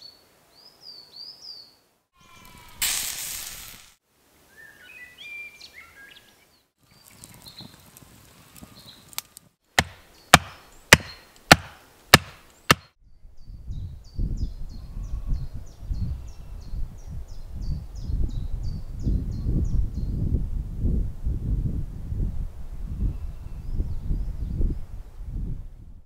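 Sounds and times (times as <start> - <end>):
birdsong: 0.0 - 2.8, 4.5 - 9.2, 9.8 - 20.2
mallet knocking wooden stake: 9.8 - 12.9.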